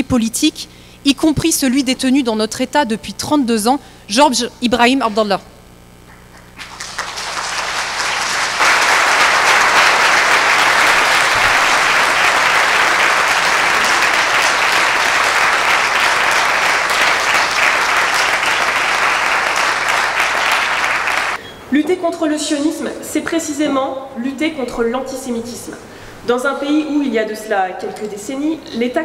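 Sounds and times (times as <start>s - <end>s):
audience applauding: 6.1s - 21.4s.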